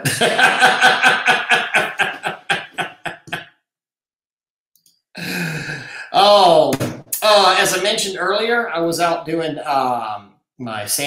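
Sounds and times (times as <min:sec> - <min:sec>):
man laughing heartily: 0:00.0 - 0:03.4.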